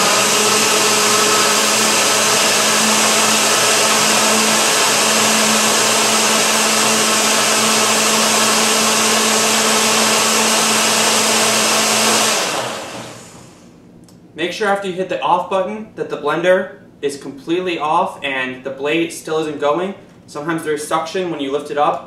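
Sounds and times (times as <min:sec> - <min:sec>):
blender running: 0:00.0 - 0:13.7.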